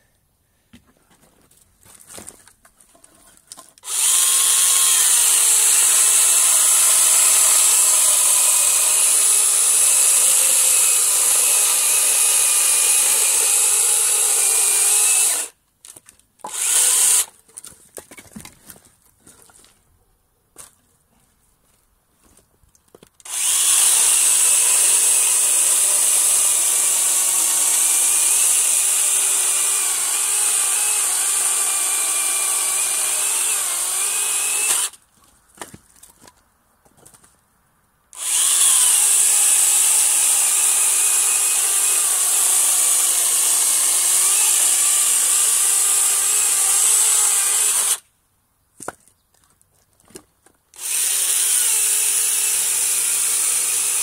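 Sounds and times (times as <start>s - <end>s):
mini chainsaw cutting logs: 3.0s - 17.7s, 23.2s - 35.0s, 38.1s - 48.0s, 50.1s - 54.0s.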